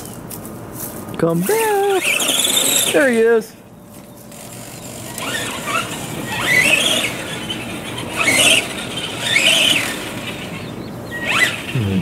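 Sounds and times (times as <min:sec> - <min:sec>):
electric toy truck motor whining: 0:01.5 - 0:03.3, 0:04.2 - 0:12.0.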